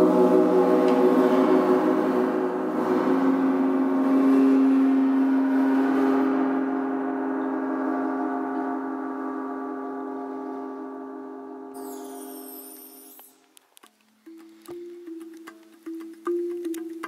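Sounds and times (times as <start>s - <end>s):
gong ringing: 0.0s - 13.2s.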